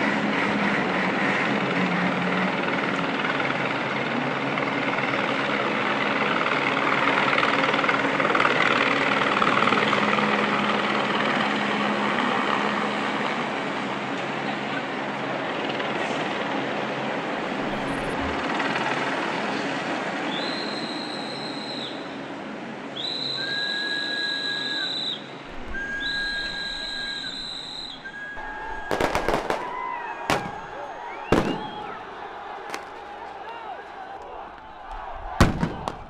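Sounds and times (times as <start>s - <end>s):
whistle blasts: 17.4s - 18.5s, 20.2s - 22.2s, 22.9s - 32.9s
sharp bangs: 25.5s - 33.1s, 35.3s - 36.0s
protest crowd din: 25.5s - 36.0s.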